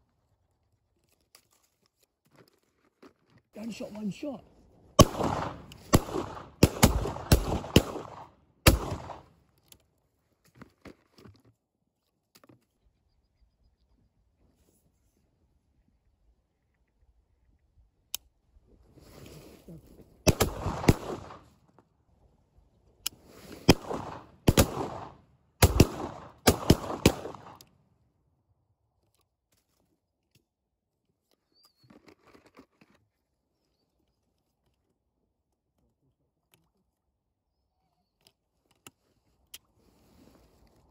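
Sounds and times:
shotgun shots with echo: 5.0 - 9.3, 20.3 - 21.4, 23.7 - 27.6.

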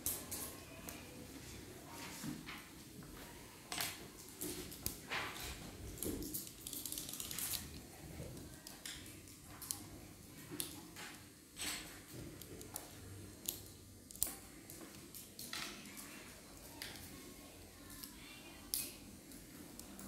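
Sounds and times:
faint room hum: 0.0 - 20.0.

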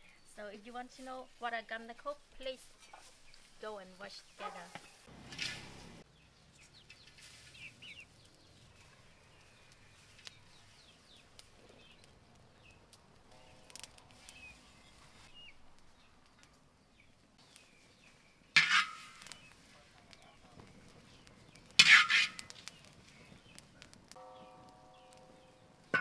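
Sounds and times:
birds chirping faintly: 0.0 - 26.0.

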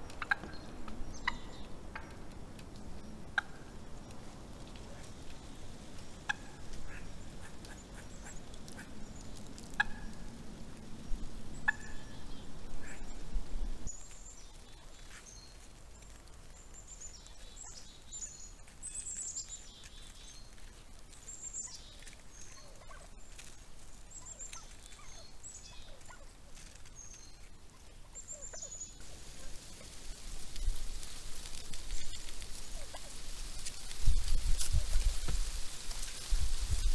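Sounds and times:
wild turkeys calling: 0.0 - 10.9, 11.6 - 13.2, 13.9 - 35.2.

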